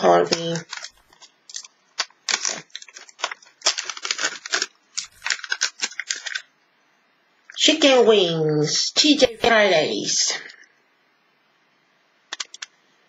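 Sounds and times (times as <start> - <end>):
thin plastic crinkling and tearing: 0.2 - 6.5.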